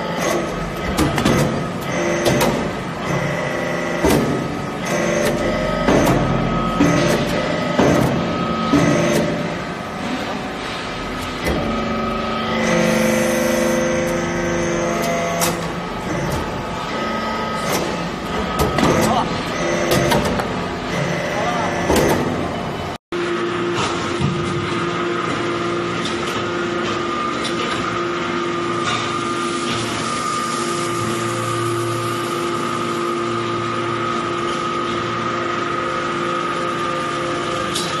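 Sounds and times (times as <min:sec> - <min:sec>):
hydraulic press humming: 0:00.0 - 0:38.0.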